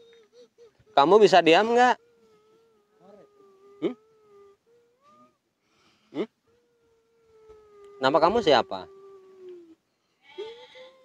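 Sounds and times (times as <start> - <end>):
man making high-pitched cries: 0.0 - 5.4, 6.1 - 9.8
faint high hum: 0.0 - 11.0.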